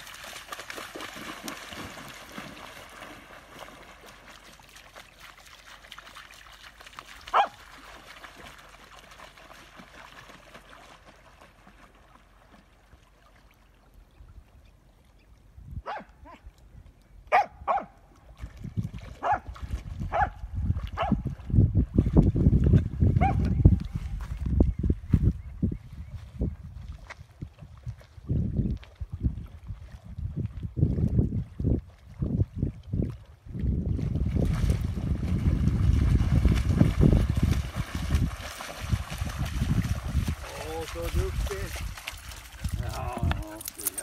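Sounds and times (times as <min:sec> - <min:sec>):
dog splashing into water: 0:00.0 - 0:12.6, 0:33.9 - 0:44.0
dog barking: 0:07.3 - 0:07.6, 0:15.8 - 0:16.4, 0:17.3 - 0:17.9, 0:19.2 - 0:19.4, 0:20.1 - 0:20.4, 0:21.0 - 0:21.2, 0:23.2 - 0:23.4.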